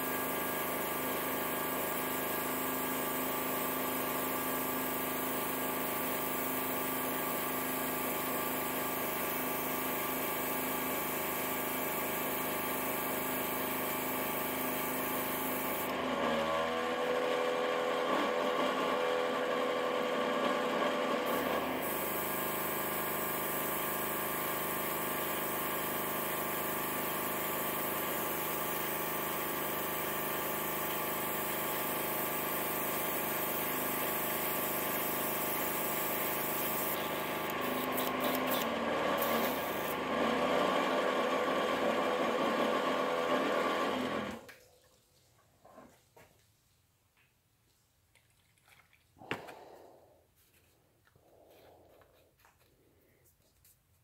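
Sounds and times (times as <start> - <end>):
compressor humming: 28.2 - 40.1
airbrush hissing: 32.8 - 38.6.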